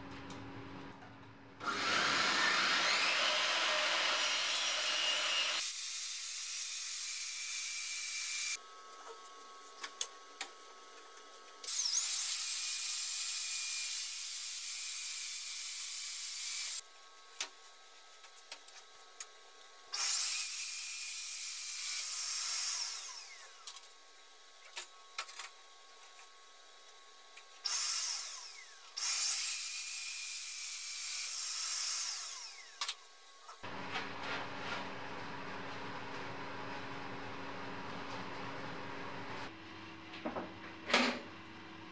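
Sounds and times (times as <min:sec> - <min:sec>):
table saw motor whine: 0:01.6 - 0:05.6.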